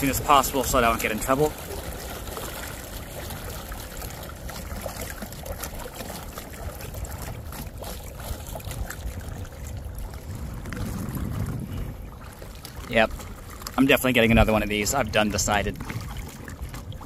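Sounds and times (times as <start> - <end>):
water splashing against boat: 0.0 - 17.0
wind on microphone: 6.0 - 13.5, 14.1 - 17.0.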